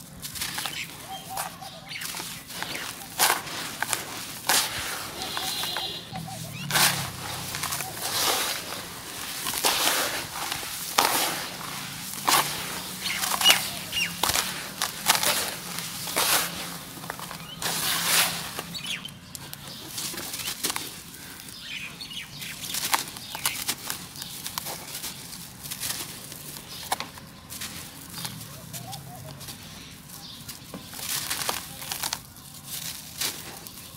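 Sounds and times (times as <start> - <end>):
hands crumbling dry dirt: 0.0 - 33.9.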